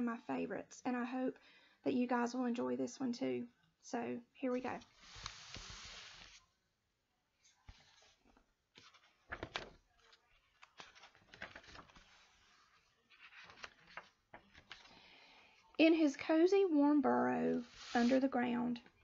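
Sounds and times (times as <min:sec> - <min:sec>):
book pages rustling: 0:04.5 - 0:06.5, 0:07.4 - 0:15.0, 0:17.5 - 0:18.3.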